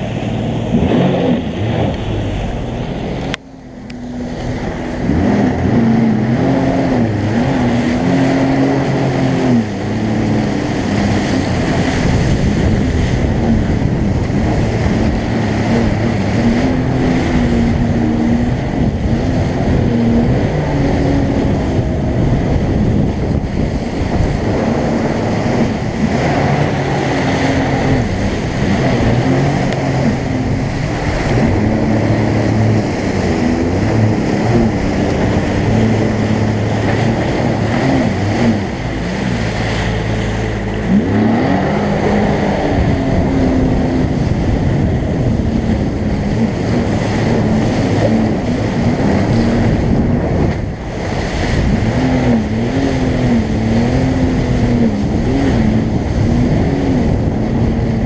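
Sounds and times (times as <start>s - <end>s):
jet ski engine running: 0.0s - 58.0s
rushing water spray: 0.0s - 58.0s
wind buffeting microphone: 0.0s - 58.0s.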